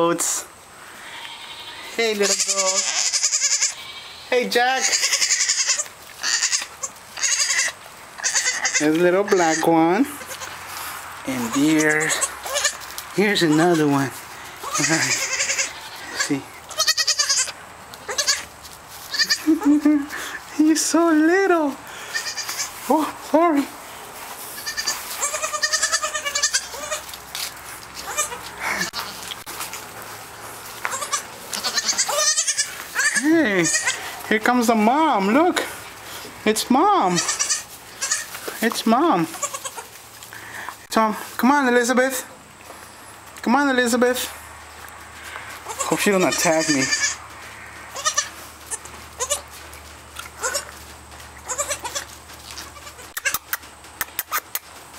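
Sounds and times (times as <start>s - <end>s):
goat kid bleating: 0.8s - 10.6s, 11.4s - 20.4s, 21.9s - 23.0s, 24.4s - 29.7s, 30.7s - 35.7s, 36.6s - 40.0s, 45.6s - 49.6s, 50.3s - 50.8s, 51.4s - 53.6s
sharp clicks: 53.1s - 54.8s.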